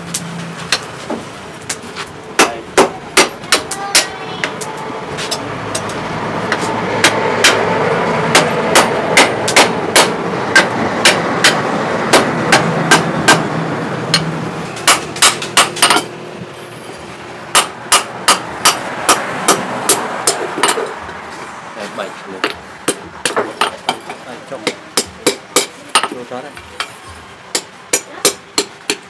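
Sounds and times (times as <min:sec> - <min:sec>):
hammer striking metal on anvil: 0:05.3 - 0:07.7, 0:08.3 - 0:13.5, 0:14.1 - 0:16.1, 0:17.5 - 0:20.9, 0:22.4 - 0:26.2, 0:26.8 - 0:29.0.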